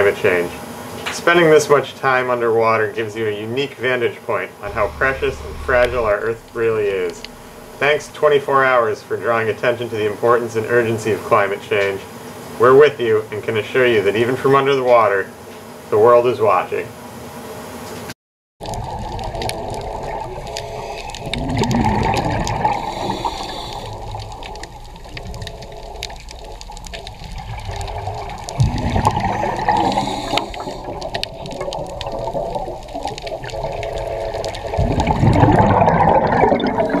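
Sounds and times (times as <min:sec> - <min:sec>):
underwater bubbling: 0:04.6 - 0:09.4, 0:18.6 - 0:37.0
underwater gurgling wash: 0:04.6 - 0:11.0, 0:18.6 - 0:37.0
sharp underwater clicks: 0:18.6 - 0:36.8.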